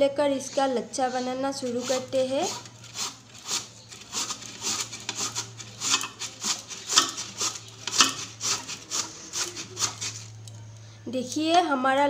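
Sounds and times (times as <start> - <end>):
potato rasping on grater: 1.6 - 10.4.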